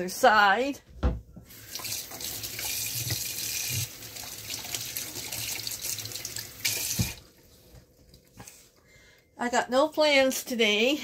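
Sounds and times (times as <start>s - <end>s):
tap running into sink: 1.0s - 7.2s
hands washing under water: 1.4s - 8.4s.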